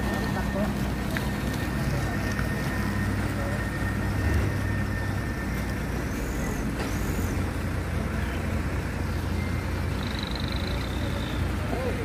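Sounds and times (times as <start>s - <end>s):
truck engine humming: 0.0s - 12.0s
faint high chirps: 8.1s - 11.9s.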